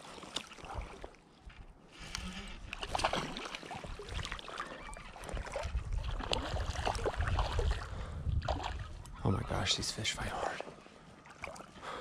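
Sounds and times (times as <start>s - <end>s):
water splashing: 0.0s - 1.3s, 2.5s - 9.0s, 10.3s - 12.0s.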